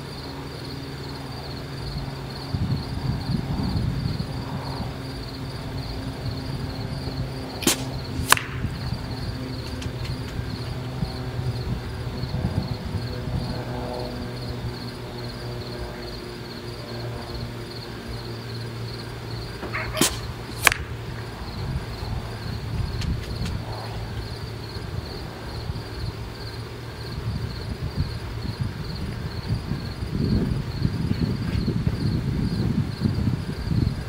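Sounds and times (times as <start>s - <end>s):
air rifle shot crack: 7.6s - 9.0s, 19.8s - 21.1s
pellet striking target: 7.6s - 9.0s, 19.6s - 21.1s.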